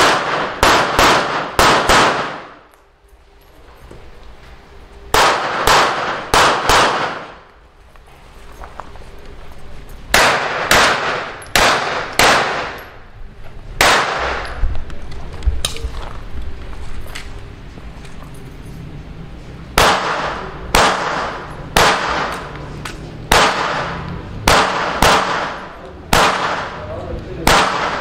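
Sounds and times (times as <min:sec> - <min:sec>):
pistol shots with echo: 0:00.0 - 0:02.7, 0:05.1 - 0:07.4, 0:10.1 - 0:13.0, 0:13.8 - 0:14.6, 0:19.8 - 0:22.5, 0:23.2 - 0:28.0.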